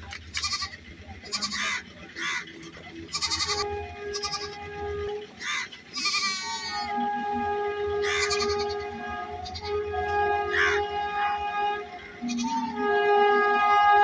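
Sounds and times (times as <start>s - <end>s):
short animal calls: 5.4s - 6.9s.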